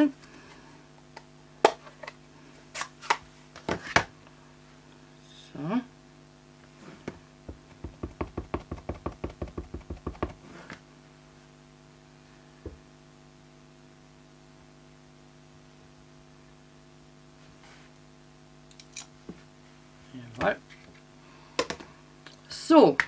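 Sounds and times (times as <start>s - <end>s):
electrical hum: 0.0s - 23.0s
block knocking on paper: 7.5s - 10.4s
stamp tapping on ink pad: 7.8s - 10.4s.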